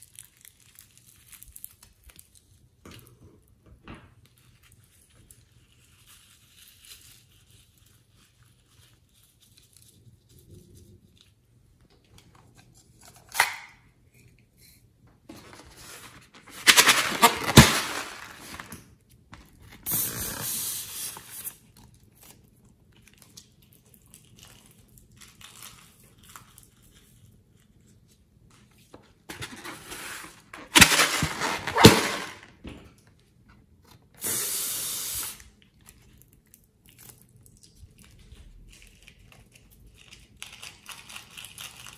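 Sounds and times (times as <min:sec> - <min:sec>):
balloons snipped open with scissors: 0:16.6 - 0:18.2.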